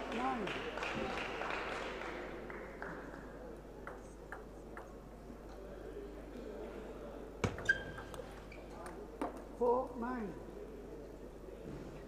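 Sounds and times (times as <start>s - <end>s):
low hall hum: 0.0s - 12.0s.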